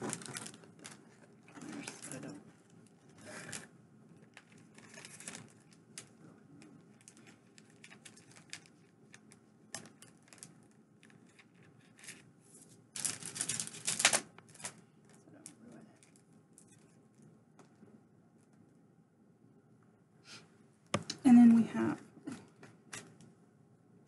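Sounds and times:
packaging clicks and rustles: 0.0s - 12.3s, 12.9s - 17.8s
packaging crinkling: 0.0s - 12.3s, 12.9s - 17.2s.

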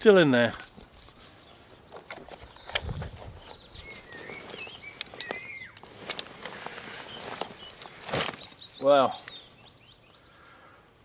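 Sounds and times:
bird singing: 1.3s - 11.0s
buckles and straps clicking: 1.8s - 9.7s.

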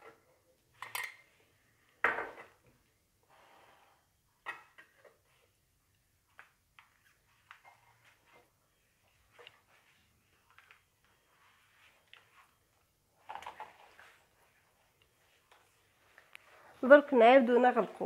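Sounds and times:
soft brushing: 6.9s - 12.8s.

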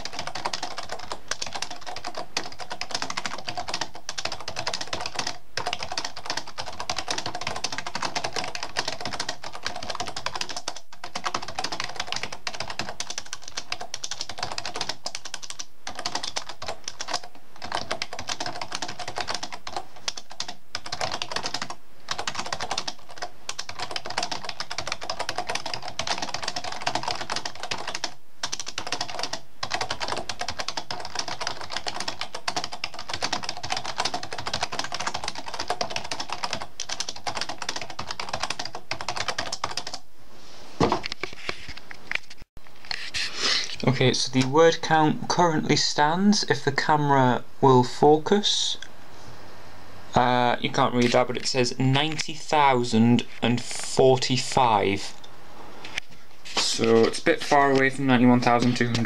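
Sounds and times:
rapid typing on keyboard: 0.0s - 40.0s, 56.8s - 59.0s.

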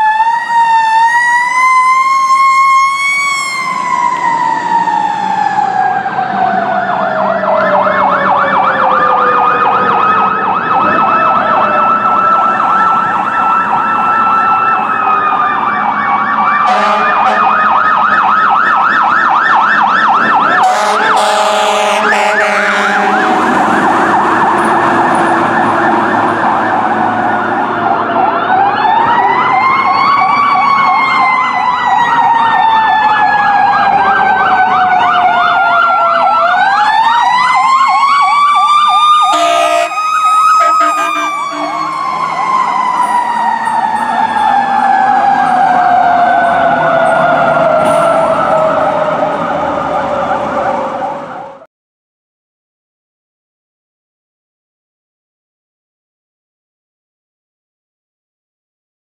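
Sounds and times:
fast electronic siren yelp: 0.0s - 51.6s
winding siren: 0.0s - 51.6s
air horn blasts: 16.6s - 17.7s, 20.6s - 23.5s, 39.3s - 40.0s, 40.6s - 42.0s.

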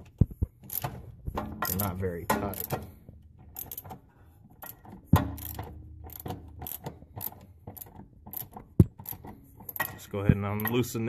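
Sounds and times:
ratchet metal clicks and clinks: 0.6s - 1.0s, 1.6s - 4.0s, 4.6s - 11.0s
sharp metal knock: 5.1s - 5.8s.

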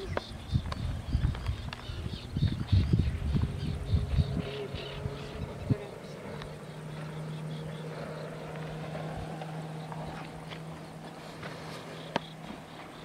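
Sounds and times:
distant motorboat engine drone: 0.0s - 13.0s.

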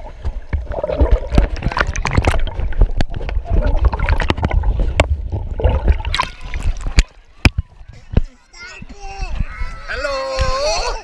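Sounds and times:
underwater splashing and bubbling: 0.0s - 7.6s
low underwater rumble: 0.0s - 7.9s.

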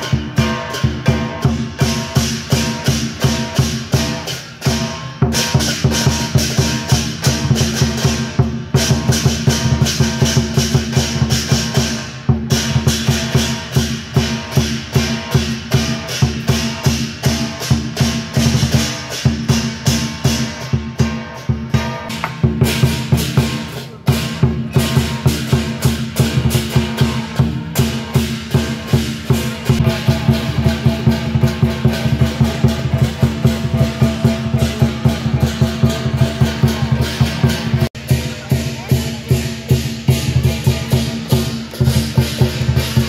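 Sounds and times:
barrel drum fast rhythm: 0.0s - 43.0s
hand cymbals clashing: 0.0s - 43.0s
gong ringing: 19.7s - 37.8s.

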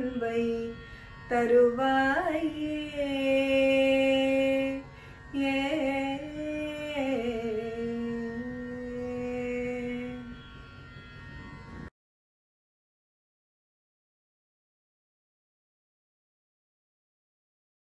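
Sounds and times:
woman singing devotional hymn: 0.0s - 10.3s.

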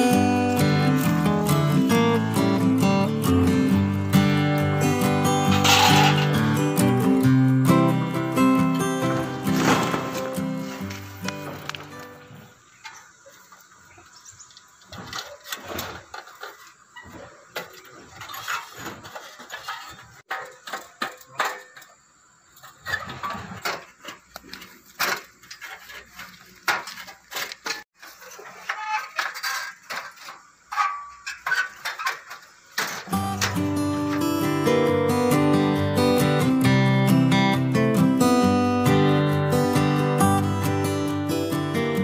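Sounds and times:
acoustic guitar music: 0.0s - 12.6s, 32.8s - 42.0s
metal pipes knocking and clanking: 5.5s - 6.5s, 9.5s - 11.9s, 25.0s - 34.3s.

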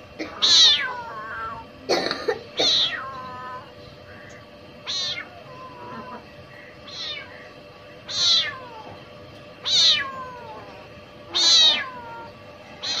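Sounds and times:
kitten meowing loudly: 0.3s - 1.6s, 2.6s - 3.7s, 4.8s - 6.2s, 6.9s - 7.4s, 8.1s - 9.0s, 9.6s - 10.6s, 11.3s - 13.0s.

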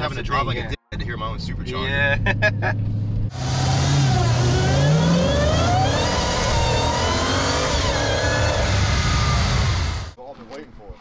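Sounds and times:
car engine at full throttle: 2.8s - 10.2s
supercharger whine: 3.3s - 10.2s.

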